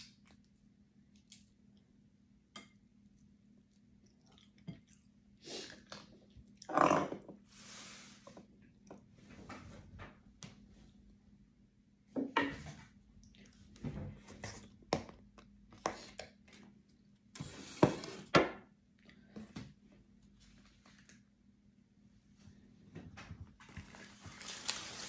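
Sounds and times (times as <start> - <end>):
rustling: 23.8 - 25.0.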